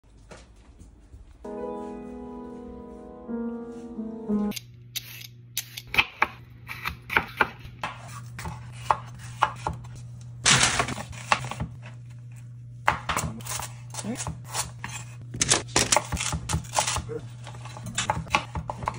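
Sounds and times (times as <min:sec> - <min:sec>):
knife scrape: 0:05.0 - 0:05.8, 0:14.5 - 0:15.2.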